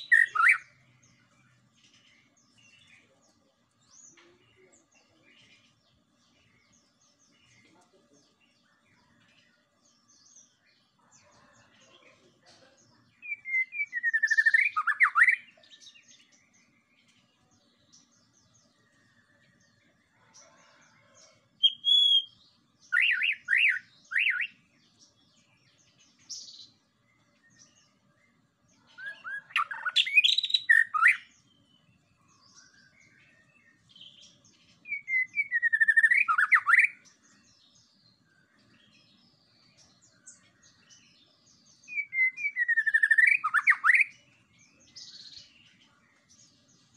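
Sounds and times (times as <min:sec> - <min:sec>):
bird singing whistled phrases: 0:13.2 - 0:15.5, 0:21.6 - 0:24.5, 0:29.0 - 0:31.3, 0:34.9 - 0:37.0, 0:41.9 - 0:44.1.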